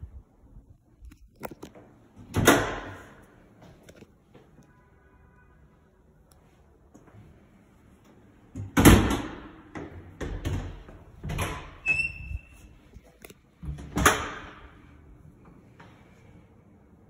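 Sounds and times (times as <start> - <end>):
closet doors knocking and banging: 8.6 - 11.8
door squeak: 11.4 - 12.7.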